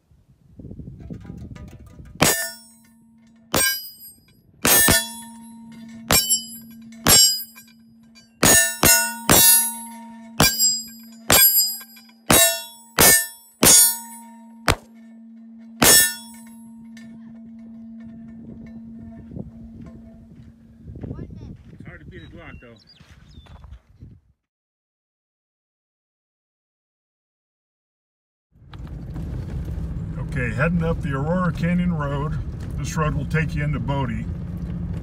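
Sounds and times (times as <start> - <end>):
steady low hum: 0.0 - 22.6
bullets striking steel targets: 1.6 - 17.1
steel gong ringing: 2.2 - 20.9.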